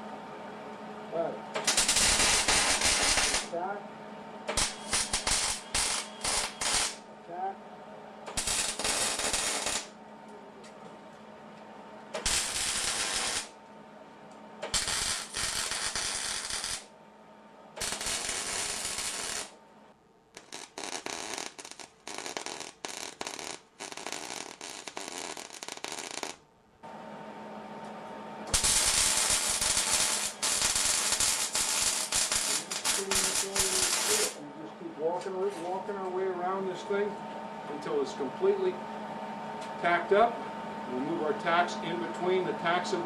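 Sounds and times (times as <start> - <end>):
steady hum: 0.0 - 25.6, 26.4 - 43.0
welding arc crackling: 1.6 - 3.6, 4.5 - 7.0, 8.3 - 9.9, 12.2 - 13.6, 14.7 - 16.9, 17.8 - 19.6, 20.4 - 26.4, 28.5 - 34.4.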